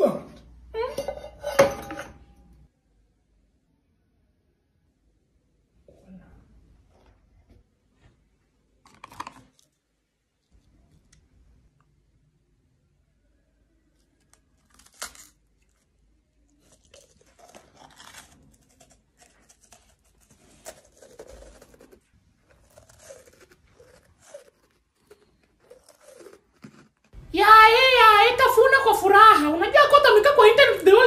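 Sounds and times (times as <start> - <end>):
man chewing crunchy cake: 14.2 - 27.2.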